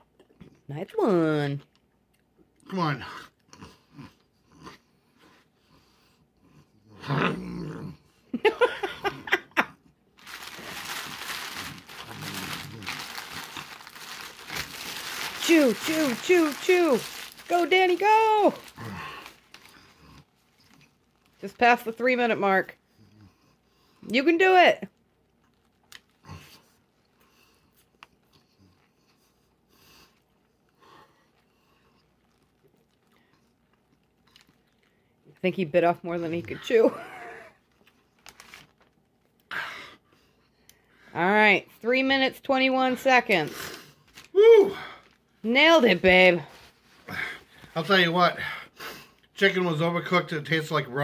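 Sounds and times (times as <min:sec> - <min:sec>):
low growl: 0:06.8 - 0:08.1, 0:11.6 - 0:13.6, 0:18.6 - 0:20.2
paper wrapper crinkling: 0:10.2 - 0:21.6, 0:37.7 - 0:39.4
chewing with mouth closed: 0:30.3 - 0:35.2.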